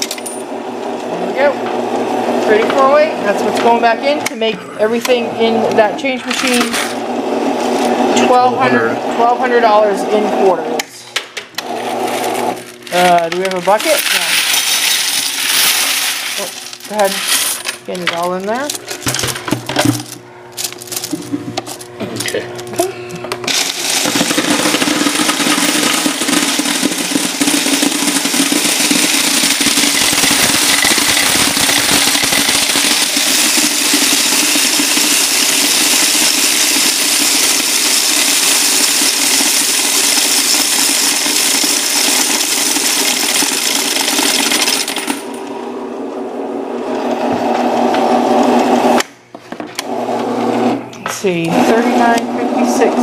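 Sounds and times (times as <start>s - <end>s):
machine motor humming: 0.0s - 53.0s
coins rattling through counter: 13.0s - 19.3s, 19.9s - 22.3s, 24.3s - 45.3s.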